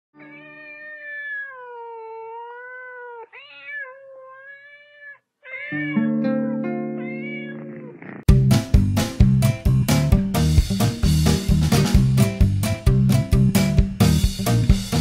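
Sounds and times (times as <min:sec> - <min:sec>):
cat meowing: 0:00.2 - 0:06.2, 0:06.8 - 0:08.3
music chords: 0:06.0 - 0:15.0.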